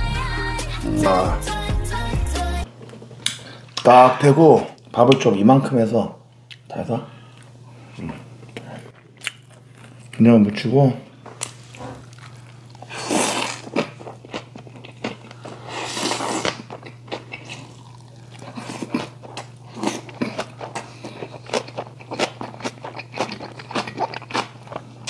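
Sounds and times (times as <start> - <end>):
wet chewing: 8.4 - 10.2, 11.4 - 25.0
man slurping noodles: 12.8 - 13.8.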